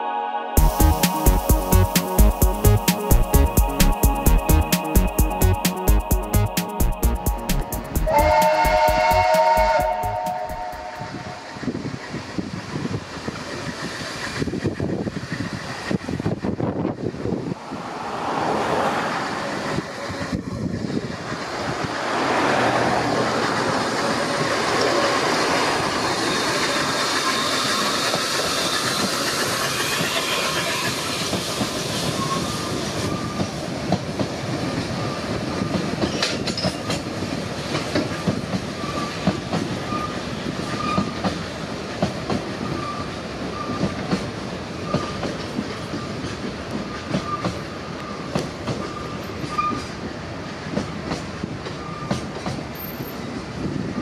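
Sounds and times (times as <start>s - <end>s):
steam train passing: 0.0s - 54.0s
train wheels clicking: 23.1s - 53.2s.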